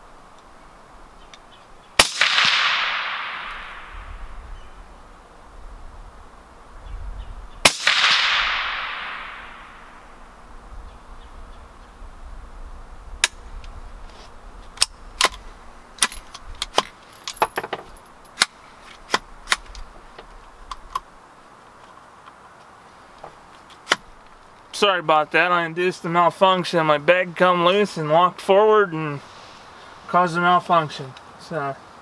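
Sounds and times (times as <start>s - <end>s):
rifle shot with echo: 2.0s - 4.1s, 7.6s - 10.0s
metallic clicks of rifle action: 16.0s - 21.1s.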